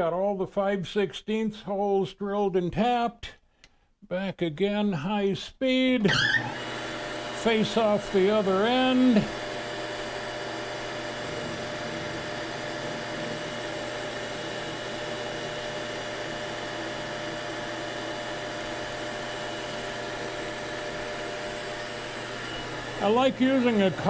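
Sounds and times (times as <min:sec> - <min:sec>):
metal lathe humming: 0:06.0 - 0:24.0.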